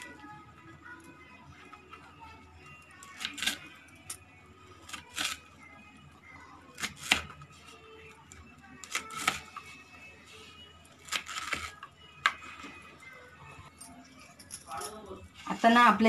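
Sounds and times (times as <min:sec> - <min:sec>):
knife chopping leaves: 0:06.8 - 0:07.3, 0:11.0 - 0:11.8.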